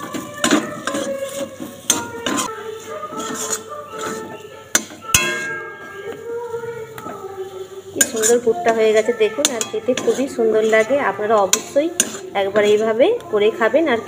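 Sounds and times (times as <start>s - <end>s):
metal spatula scraping a pan: 0.0s - 13.2s.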